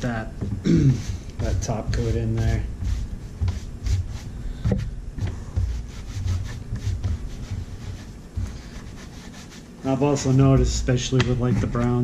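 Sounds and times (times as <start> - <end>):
gloved hand rubbing leather: 0.0 - 12.0
bumps against wooden workbench: 0.3 - 8.9.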